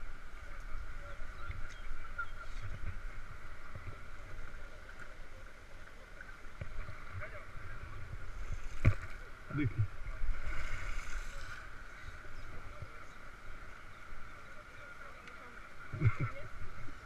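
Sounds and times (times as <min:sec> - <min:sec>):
wind and handling rumble on microphone: 0:00.0 - 0:05.0, 0:06.4 - 0:13.1
faint voices: 0:00.0 - 0:17.0.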